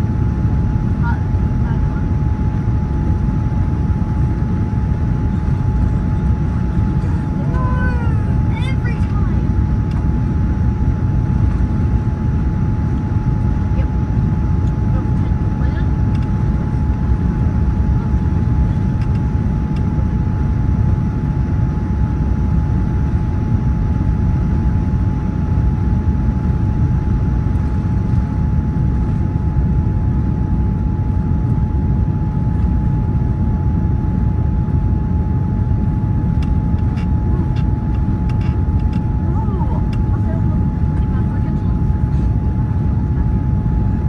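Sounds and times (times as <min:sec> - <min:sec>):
constant mid-pitched hum: 0:00.0 - 0:44.0
jet engine and airflow rumble: 0:00.0 - 0:44.0.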